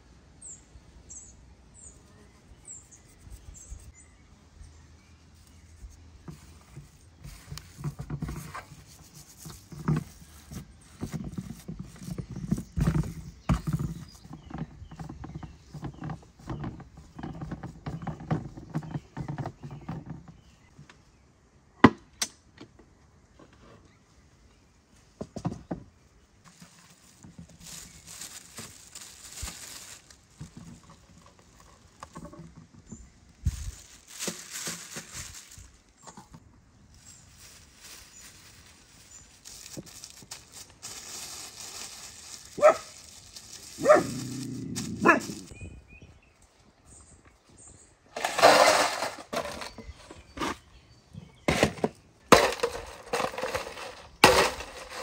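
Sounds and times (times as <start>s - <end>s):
plastic bag crinkling: 26.5s - 31.7s, 33.5s - 35.8s, 37.0s - 45.6s
dog barking: 42.6s - 42.9s, 43.8s - 44.2s, 45.0s - 45.4s.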